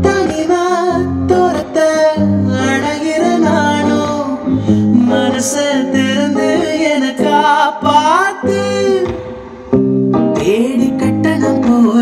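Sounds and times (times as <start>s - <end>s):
dance song with singing: 0.0s - 9.4s, 10.4s - 12.0s.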